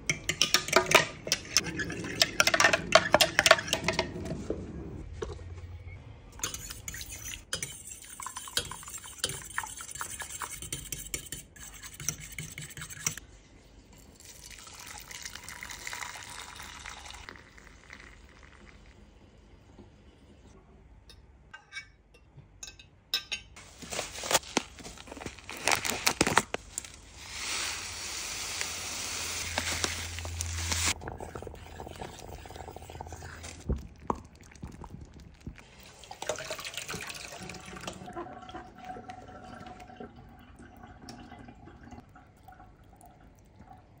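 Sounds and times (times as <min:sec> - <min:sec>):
utensils clinking on metal pot: 0:00.1 - 0:04.2
stirring and straining: 0:28.8 - 0:40.0.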